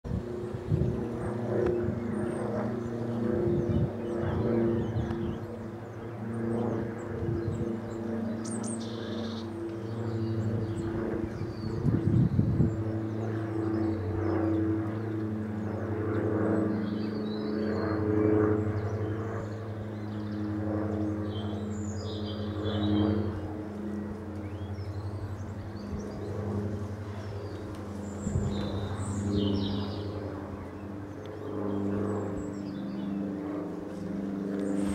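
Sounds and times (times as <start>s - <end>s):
propeller engines humming overhead: 0.0s - 34.9s
small birds chirping: 0.4s - 18.0s, 18.6s - 34.9s.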